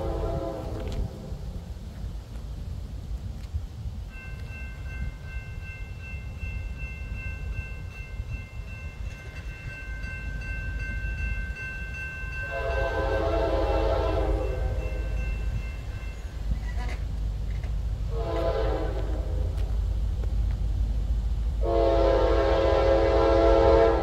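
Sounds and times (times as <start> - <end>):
locomotive air horn blast: 0.0 - 1.3, 12.5 - 15.0, 18.1 - 19.5, 21.6 - 24.0
train rumbling: 0.0 - 24.0.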